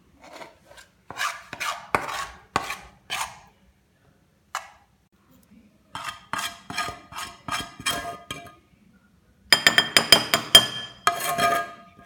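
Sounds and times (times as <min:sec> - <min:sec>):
scraping in a steel pan: 0:00.0 - 0:03.5, 0:05.9 - 0:08.6, 0:10.3 - 0:12.0
metal clinking against glass: 0:09.6 - 0:11.9.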